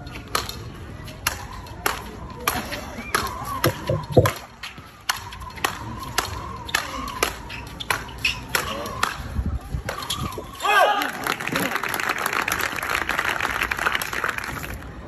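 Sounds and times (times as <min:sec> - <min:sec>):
rackets striking ball: 0:01.2 - 0:04.5.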